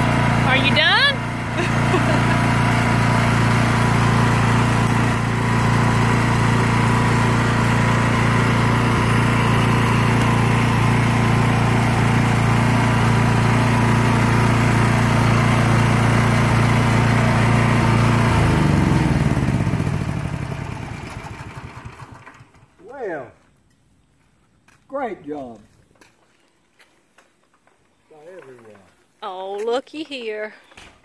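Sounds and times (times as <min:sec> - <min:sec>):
small gas engine running: 0:00.0 - 0:22.8.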